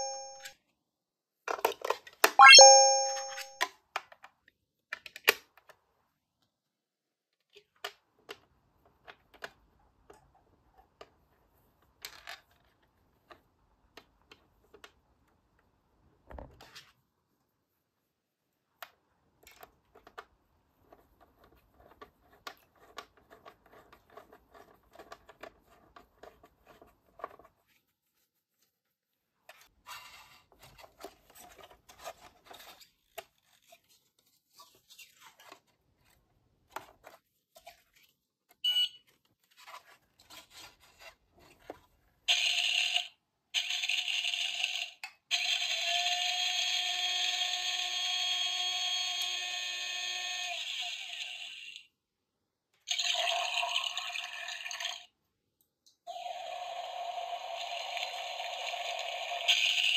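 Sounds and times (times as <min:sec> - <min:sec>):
short electronic beep: 0:00.0 - 0:00.5, 0:02.4 - 0:03.6
toy alarm-like electronic sound: 0:00.0 - 0:00.5, 0:02.4 - 0:03.6, 0:58.6 - 0:59.9.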